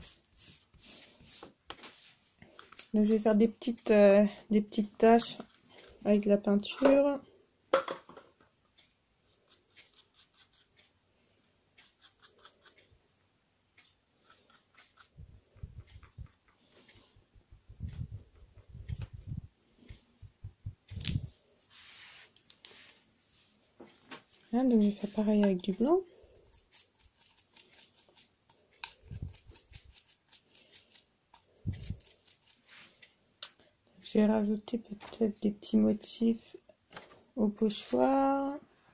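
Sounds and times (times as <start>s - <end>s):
tissue dabbing paper: 0.0s - 2.3s, 21.7s - 23.5s.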